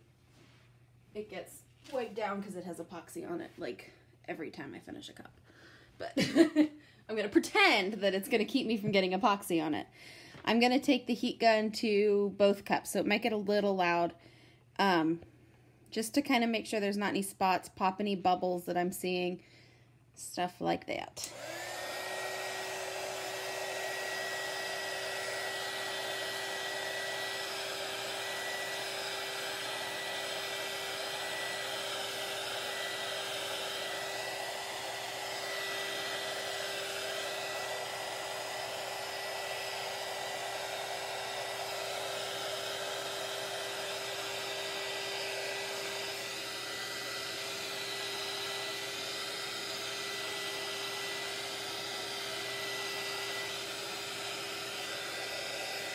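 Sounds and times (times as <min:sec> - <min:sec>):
heat gun blowing air: 0:21.2 - 0:55.9.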